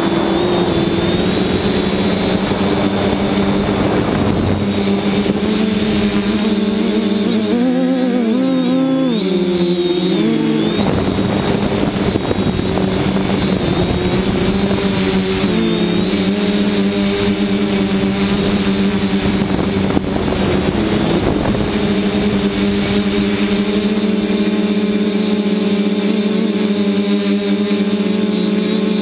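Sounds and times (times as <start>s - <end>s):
rushing air noise: 0.0s - 7.6s, 9.4s - 24.4s
drone motors buzzing whine: 0.0s - 29.0s.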